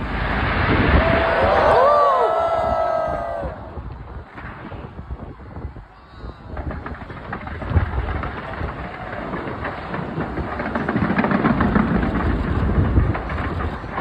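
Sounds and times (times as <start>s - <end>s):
fireworks booms: 0.0s - 14.0s
fireworks crackling pops: 0.0s - 14.0s.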